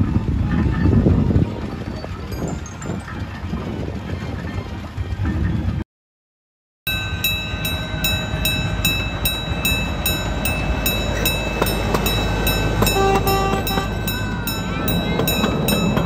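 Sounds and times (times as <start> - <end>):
train whine: 6.9 - 16.0
miniature train clicking on track: 7.1 - 16.0.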